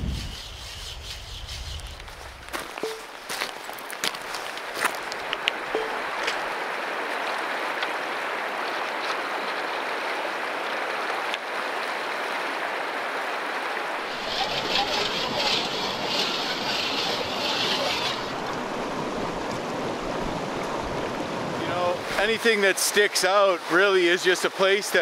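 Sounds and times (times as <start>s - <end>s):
creek water running over stones: 1.8s - 25.0s
footsteps on gravel: 2.0s - 5.4s
water splashing: 2.5s - 24.2s.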